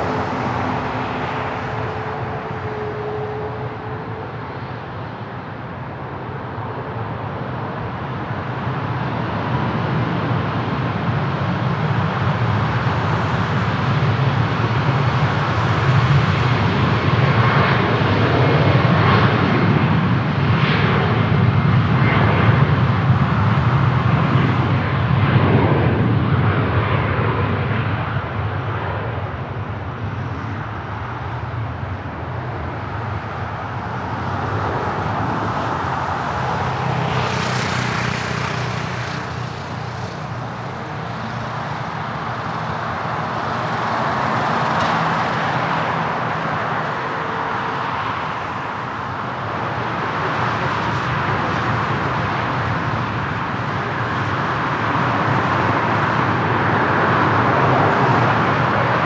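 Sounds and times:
jet engines droning: 0:00.0 - 0:59.0.

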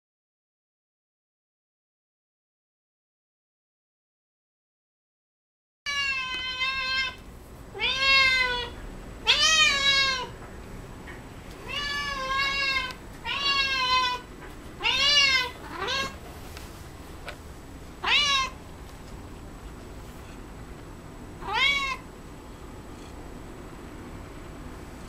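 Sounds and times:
cat meowing: 0:05.9 - 0:10.3, 0:11.6 - 0:16.2, 0:18.0 - 0:18.6, 0:21.4 - 0:22.1.

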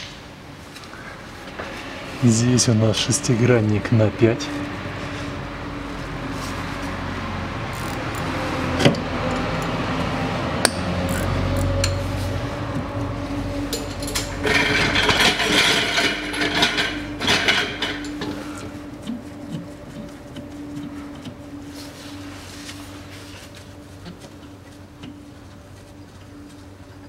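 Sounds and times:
steady hum: 0:00.0 - 0:27.0
hex key clicking and scraping: 0:07.7 - 0:08.3, 0:11.0 - 0:11.7.

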